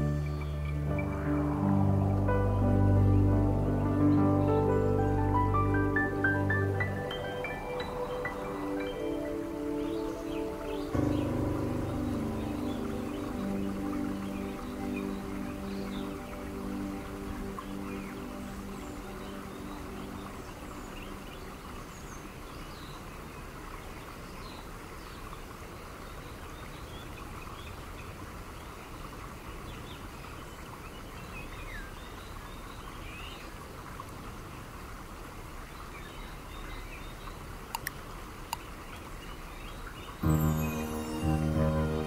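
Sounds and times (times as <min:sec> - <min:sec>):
steady background hiss: 0:00.0 - 0:42.0
sharp clicks: 0:37.7 - 0:38.6
bird chirps: 0:40.1 - 0:42.0.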